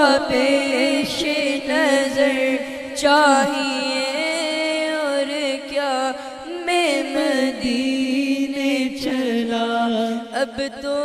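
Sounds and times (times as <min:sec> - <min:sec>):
boy singing devotional song: 0:00.0 - 0:11.0.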